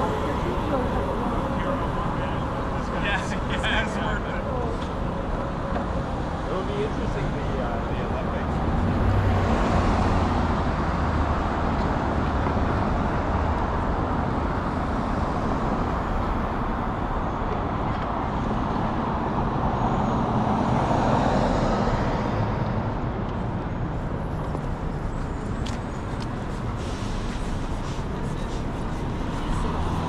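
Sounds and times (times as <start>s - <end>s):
loud vehicle passing: 0.0s - 16.8s
passing cars road noise: 0.0s - 30.0s.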